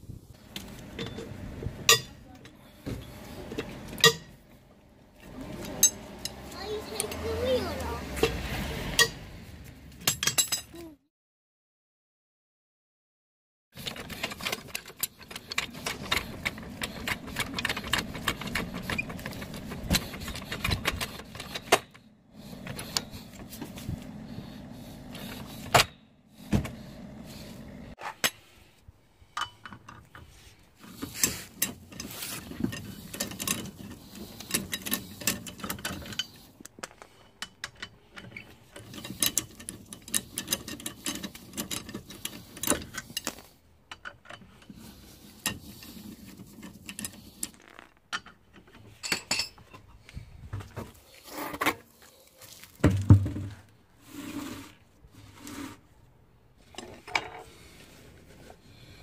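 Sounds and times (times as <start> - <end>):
trolley jack pumping clanks: 2.9 - 4.4, 13.8 - 27.8, 30.9 - 36.6, 37.3 - 47.6
wheel brace clicking on bolts: 13.8 - 28.4, 29.3 - 50.0.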